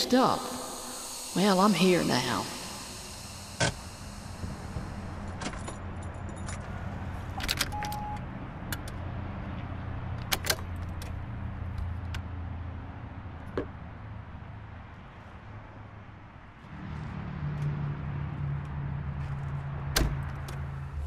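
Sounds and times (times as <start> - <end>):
low steady hum: 0.0 - 8.2.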